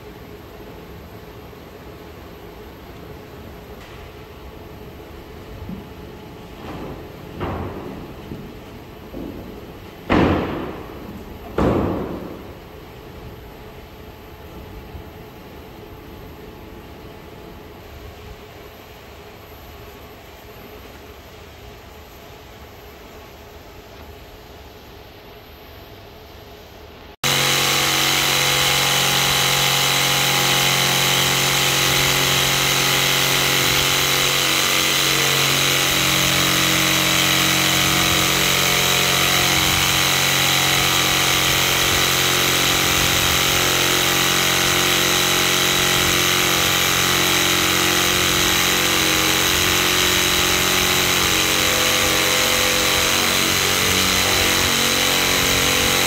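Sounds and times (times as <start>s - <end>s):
electric jigsaw cutting wood: 27.2s - 56.0s.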